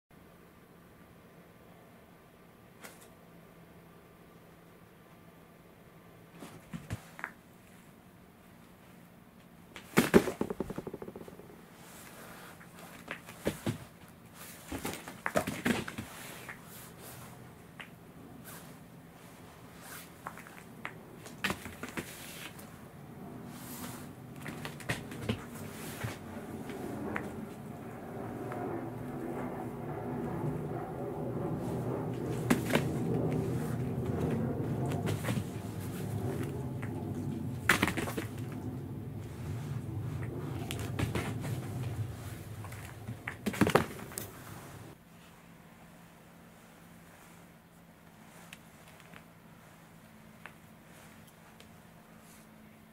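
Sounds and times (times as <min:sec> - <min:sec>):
steady low hum: 0:10.0 - 0:12.9, 0:16.0 - 0:52.9
cat paws tapping on wooden floor: 0:10.2 - 0:11.5.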